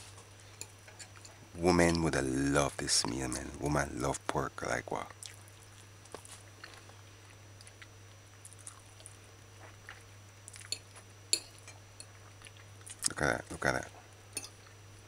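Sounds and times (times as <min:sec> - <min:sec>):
low steady hum: 0:00.0 - 0:15.0
person chewing food: 0:05.1 - 0:13.1.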